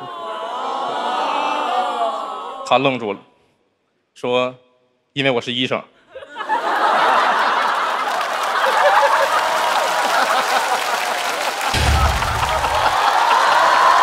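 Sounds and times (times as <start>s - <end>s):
audience laughing and applauding: 6.3s - 14.0s
low boom: 11.8s - 13.0s.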